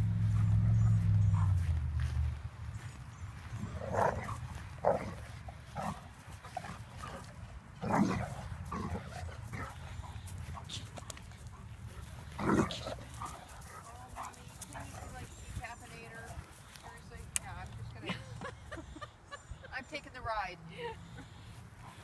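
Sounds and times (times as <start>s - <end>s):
dogs barking and grunting: 0.0s - 2.0s, 3.0s - 15.6s.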